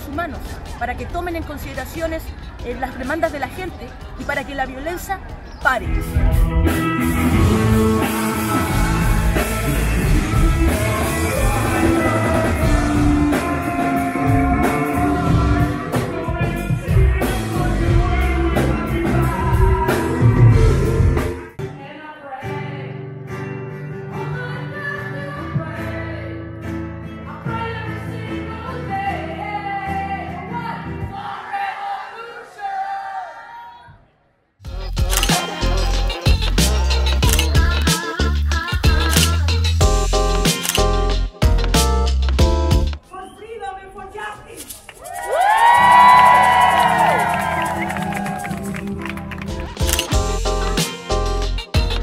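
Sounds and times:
live rock band playing: 5.8s - 21.7s, 34.7s - 43.0s, 47.0s - 52.0s
man singing lead vocals: 5.8s - 23.2s
woman singing: 21.6s - 23.1s, 24.1s - 26.4s, 27.3s - 31.2s.

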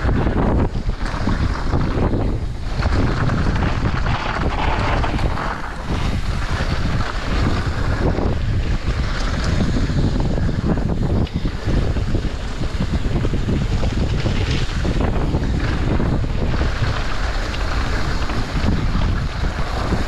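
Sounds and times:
bike tyres and frame rattling: 0.0s - 20.0s
wind buffeting microphone: 0.0s - 20.0s.

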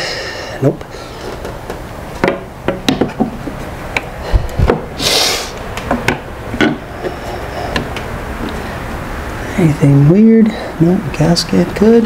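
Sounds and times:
knocks of metal and plastic parts: 1.3s - 4.9s, 5.8s - 6.8s
short hiss: 5.0s - 5.6s.

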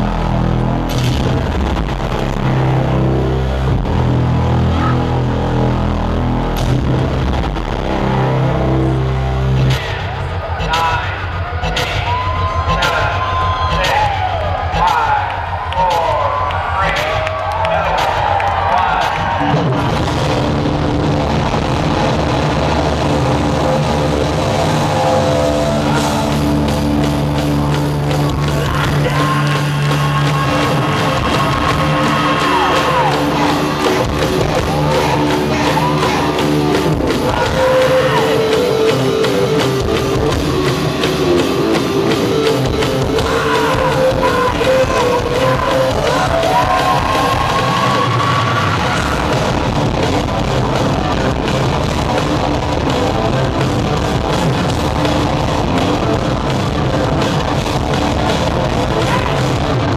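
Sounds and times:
live hard rock band: 18.0s - 59.9s
person singing: 28.4s - 49.4s.

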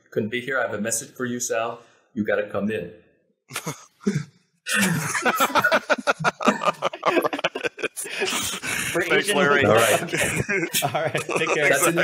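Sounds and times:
men laughing: 4.7s - 12.0s.

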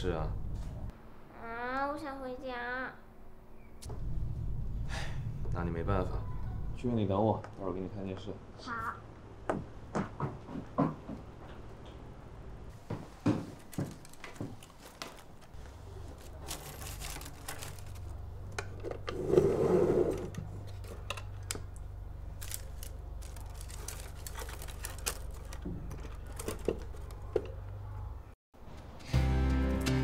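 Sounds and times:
low steady hum: 0.0s - 9.8s
rustling clatter: 13.3s - 21.4s, 22.3s - 27.7s.

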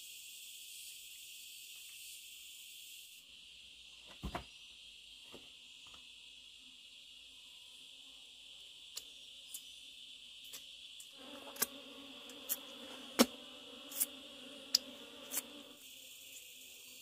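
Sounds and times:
crickets and insects chirring: 0.0s - 17.0s
low steady hum: 11.0s - 15.8s.

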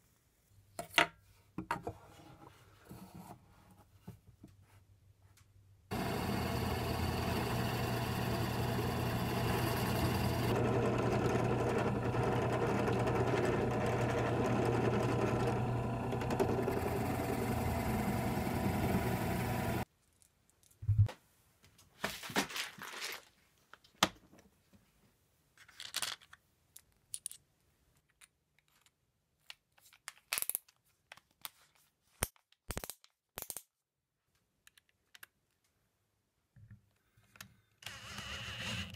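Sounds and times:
drill press boring into wood: 5.9s - 19.8s
clicks and knocks of parts handled: 25.6s - 33.7s, 34.3s - 35.7s.

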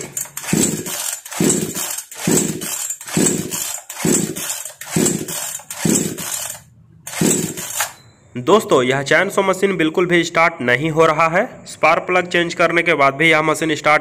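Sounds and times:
chainsaw recoil starter pulls: 0.0s - 8.0s
engine turning over whirring rasp: 0.0s - 8.0s.

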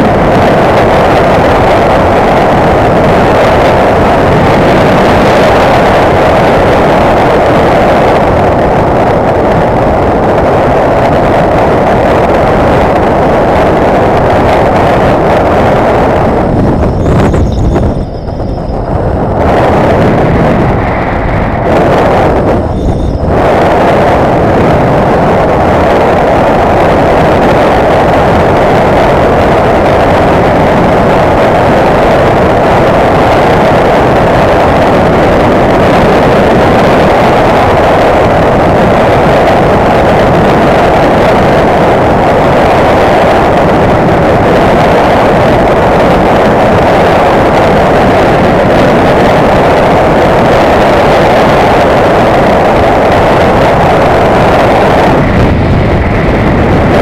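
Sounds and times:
wind roaring over microphone: 0.0s - 57.0s
motorcycle engine running: 15.0s - 24.8s.

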